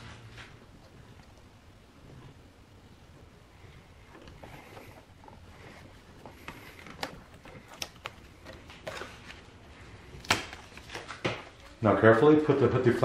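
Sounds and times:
paper and masking tape rustling: 4.2s - 11.8s.

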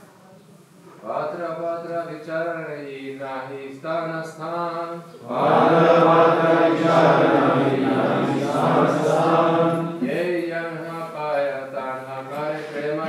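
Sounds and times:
man chanting: 1.0s - 13.0s
group of voices chanting in unison: 5.2s - 10.1s.

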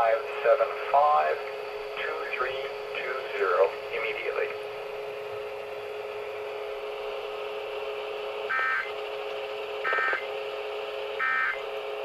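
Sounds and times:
steady low hum: 0.0s - 12.0s
buzzy digital chirps: 8.5s - 9.0s.

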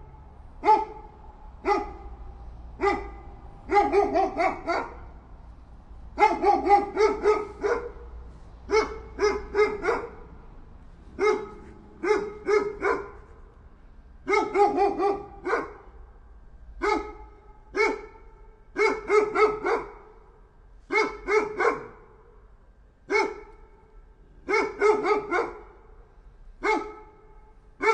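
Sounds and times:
dog barking: 0.6s - 2.2s, 2.8s - 5.2s, 6.2s - 10.3s, 11.1s - 13.4s, 14.2s - 16.0s, 16.8s - 20.2s, 20.9s - 22.4s, 23.1s - 23.8s, 24.4s - 26.0s, 26.6s - 27.9s.

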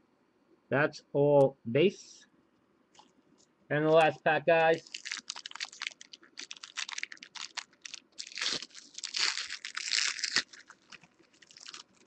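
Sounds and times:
foil wrapper crinkling and tearing: 4.7s - 12.0s.

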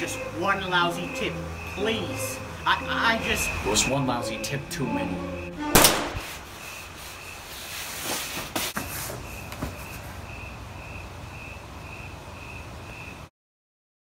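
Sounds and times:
steady hiss: 6.0s - 9.2s.

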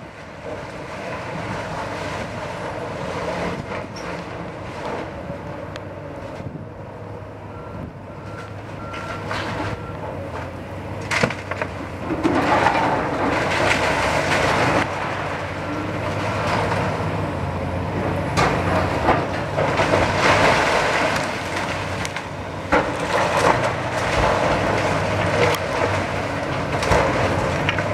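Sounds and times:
excavator diesel engine running: 0.0s - 27.9s
bricks and debris crashing: 11.1s - 15.4s, 18.4s - 27.9s.

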